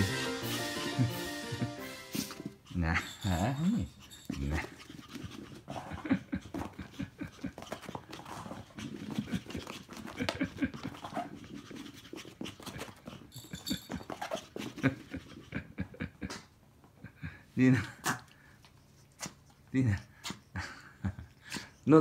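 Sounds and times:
puppy panting: 0.1 - 16.4, 17.2 - 22.0
paws scrabbling over carpet: 4.6 - 15.6.

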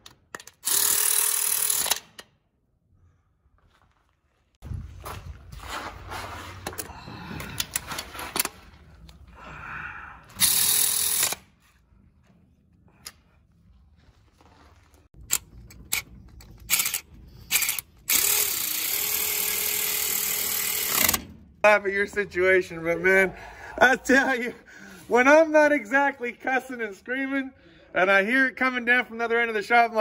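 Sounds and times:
tool handling clicks: 0.0 - 2.3
cordless ratchet whining: 0.4 - 2.0, 10.4 - 11.5, 15.2 - 21.3.

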